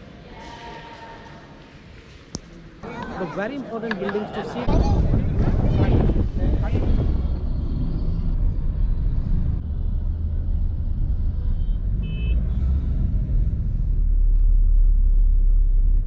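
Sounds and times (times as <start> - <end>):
road and engine noise inside car: 8.8 - 15.4.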